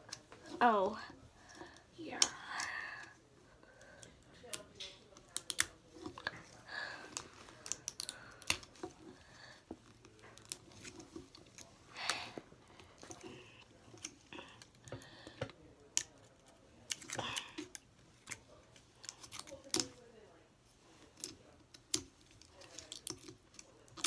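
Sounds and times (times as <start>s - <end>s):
crinkly rustles: 5.8s - 14.9s.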